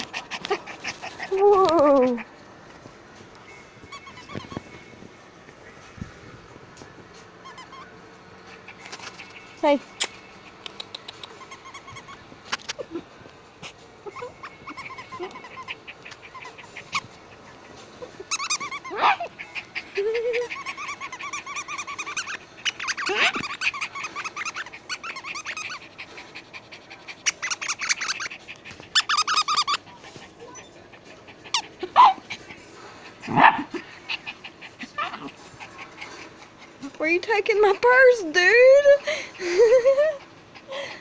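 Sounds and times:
small dog whining and yipping: 3.8s - 4.8s, 7.4s - 9.5s, 11.3s - 13.0s, 14.0s - 25.9s, 27.2s - 32.3s, 33.3s - 35.8s.

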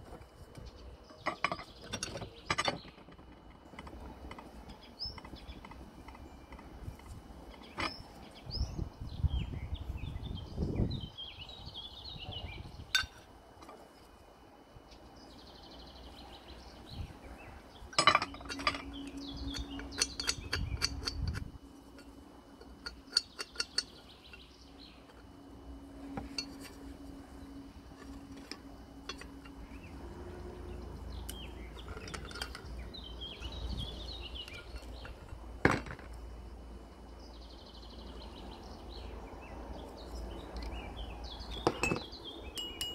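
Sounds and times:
cast iron parts clinking: 0.0s - 8.2s, 12.9s - 13.8s, 17.8s - 27.1s, 27.8s - 30.1s, 30.7s - 36.2s, 41.5s - 42.9s.

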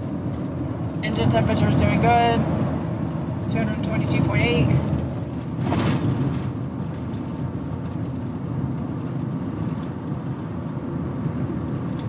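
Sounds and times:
engine and road drone: 0.0s - 12.0s.

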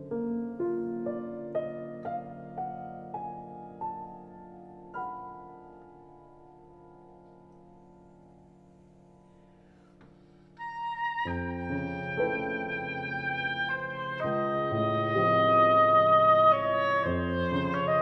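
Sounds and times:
piano chords: 0.0s - 18.0s
bassoon low notes: 10.6s - 18.0s
oboe: 10.6s - 18.0s.

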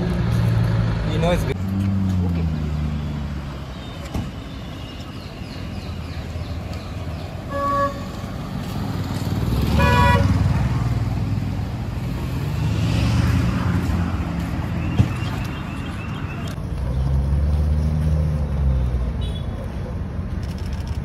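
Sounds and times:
car engines passing: 0.0s - 21.0s
car horn honking: 7.5s - 8.2s, 9.8s - 10.4s.

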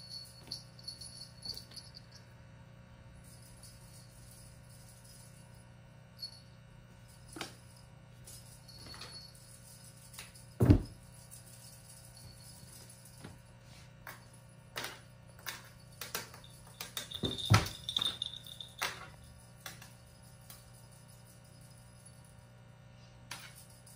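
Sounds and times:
faint steady hum: 0.0s - 23.9s
cats pouncing on tiled floor: 14.8s - 20.0s.

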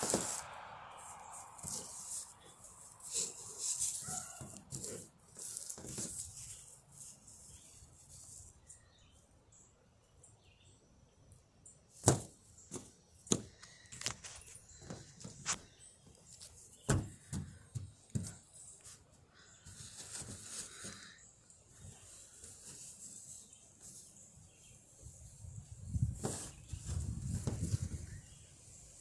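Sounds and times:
beanbag toys rustling: 0.0s - 0.4s.

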